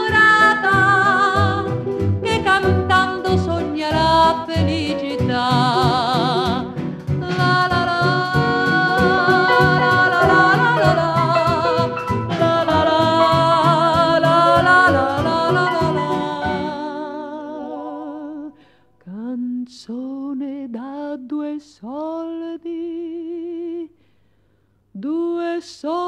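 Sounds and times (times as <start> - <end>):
woman singing with vibrato: 0.0 - 23.9, 25.0 - 26.0
orchestra playing: 4.7 - 16.9, 17.6 - 18.4.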